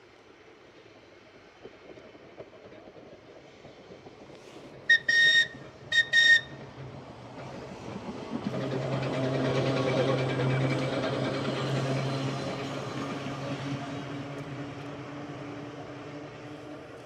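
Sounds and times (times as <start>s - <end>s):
tram wheels and motors rumbling: 0.1s - 17.0s
tram whistle blasts: 4.9s - 6.6s.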